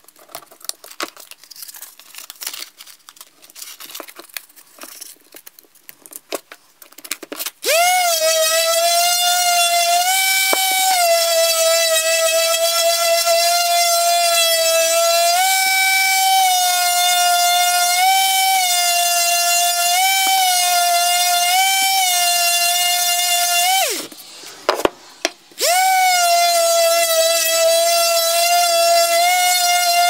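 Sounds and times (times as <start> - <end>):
electric sander whining: 7.6 - 24.2, 25.6 - 30.0.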